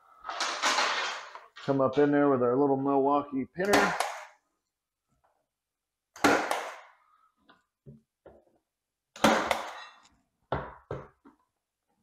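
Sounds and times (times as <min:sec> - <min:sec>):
pin nailer shots: 0:03.6 - 0:04.4, 0:06.2 - 0:07.0, 0:09.2 - 0:09.9.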